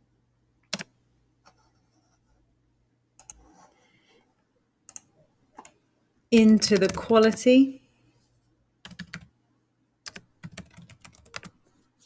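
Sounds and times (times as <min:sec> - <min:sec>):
keyboard and mouse clicks: 0:00.6 - 0:00.9, 0:03.2 - 0:03.6, 0:04.9 - 0:05.8, 0:08.9 - 0:09.3, 0:10.0 - 0:11.6.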